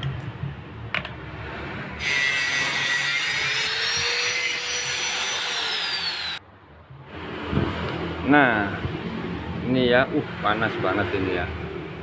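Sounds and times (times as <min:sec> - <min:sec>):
power tool grinding metal: 0:02.0 - 0:06.4.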